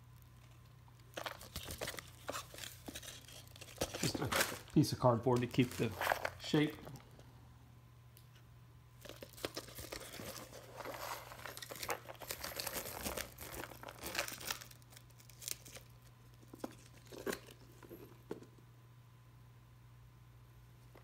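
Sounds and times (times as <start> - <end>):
packaging crinkling and rustling: 0.2 - 7.2, 9.0 - 18.2.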